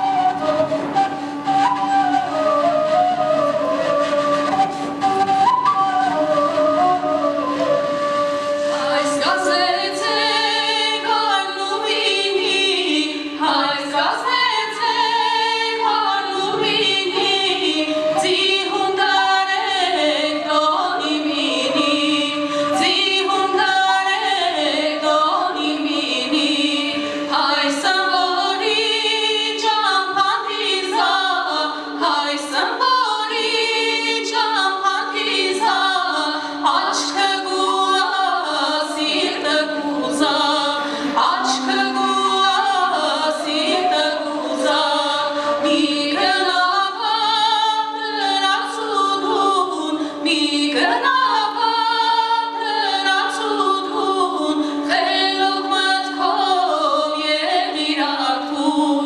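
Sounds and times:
women singing: 0:05.7 - 0:59.0
held drone note: 0:39.1 - 0:47.0.

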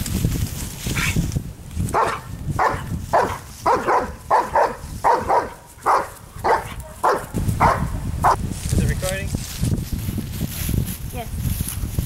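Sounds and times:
dog barking sharply: 0:01.9 - 0:08.4.

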